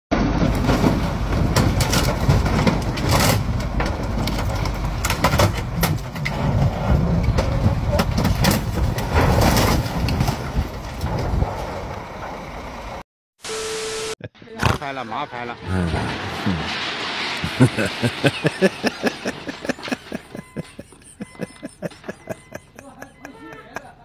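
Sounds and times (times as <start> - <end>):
heavy vehicle engine rumble: 0.1 - 9.2, 15.7 - 24.0.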